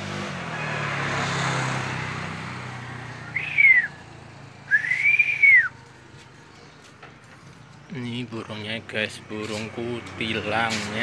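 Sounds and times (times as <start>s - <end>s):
passing motor vehicle: 0.0s - 11.0s
whistled rising falling notes: 3.2s - 4.0s, 4.7s - 5.8s.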